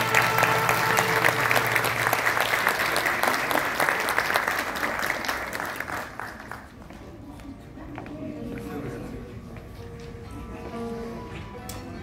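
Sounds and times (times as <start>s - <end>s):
held musical note: 0.0s - 2.7s
audience applause: 0.0s - 7.0s.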